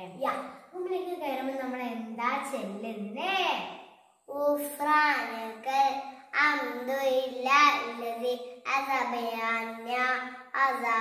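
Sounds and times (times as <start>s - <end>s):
girl chanting: 4.3s - 11.0s.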